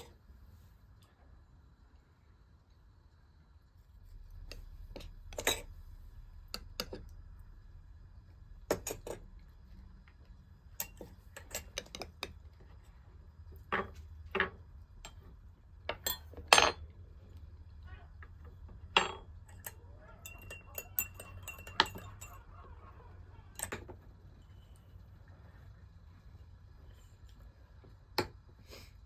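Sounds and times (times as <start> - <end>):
spoon clinking on glass bowl: 19.0 - 22.9.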